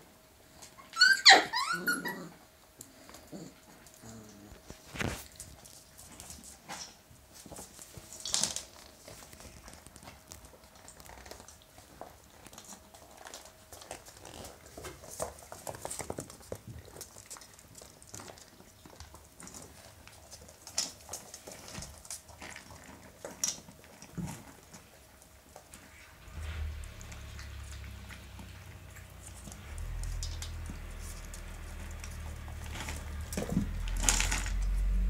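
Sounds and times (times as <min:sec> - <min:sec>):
puppies crunching kibble: 0:00.0 - 0:35.0
paws clicking on metal bowl: 0:07.5 - 0:25.9, 0:26.8 - 0:34.8.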